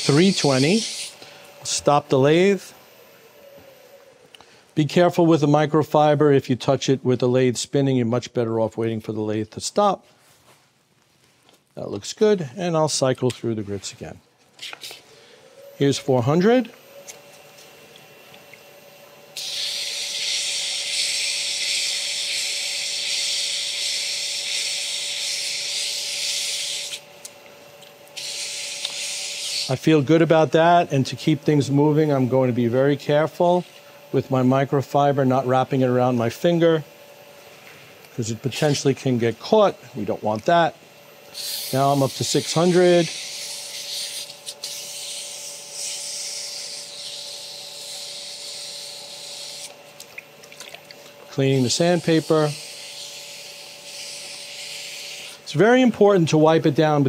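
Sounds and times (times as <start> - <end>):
wet sanding hiss on lathe: 0.0 - 2.7, 19.4 - 27.0, 28.2 - 33.8, 41.3 - 49.8, 51.4 - 56.2
faint steady hum: 0.0 - 57.0.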